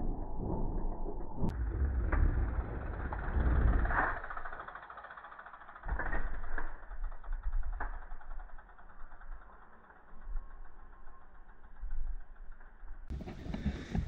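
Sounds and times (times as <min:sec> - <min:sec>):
bike tyres rumbling over dirt: 0:01.2 - 0:05.7, 0:13.1 - 0:14.0.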